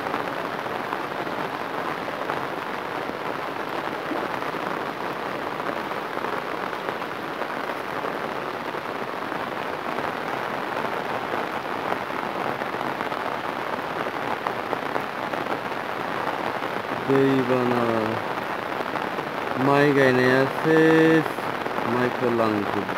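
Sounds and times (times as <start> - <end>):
heavy rain on water: 0.0 - 22.9.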